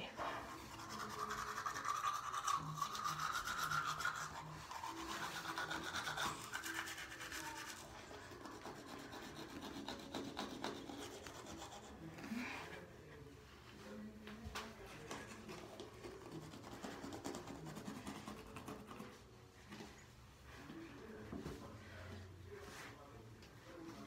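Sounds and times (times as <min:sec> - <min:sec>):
toothbrush scrubbing teeth: 0:00.3 - 0:12.2, 0:15.1 - 0:19.3.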